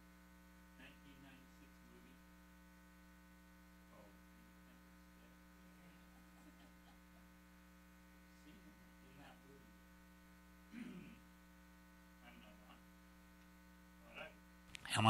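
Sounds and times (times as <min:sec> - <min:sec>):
electrical mains hum: 0:00.0 - 0:15.0
faint man's voice: 0:00.8 - 0:02.3, 0:08.3 - 0:09.8, 0:10.7 - 0:11.2, 0:12.2 - 0:12.8, 0:14.0 - 0:15.0.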